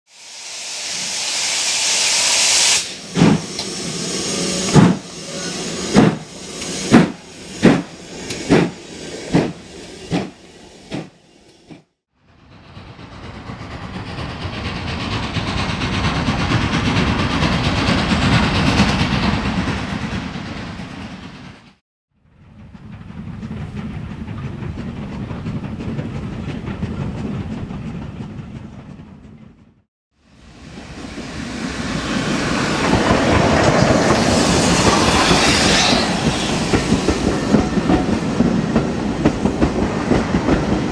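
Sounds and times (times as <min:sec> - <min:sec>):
steam hissing: 0:00.1 - 0:11.9, 0:12.5 - 0:21.5, 0:30.3 - 0:40.9
steam locomotive exhaust beats: 0:00.1 - 0:40.9
steam trains passing: 0:00.1 - 0:40.9.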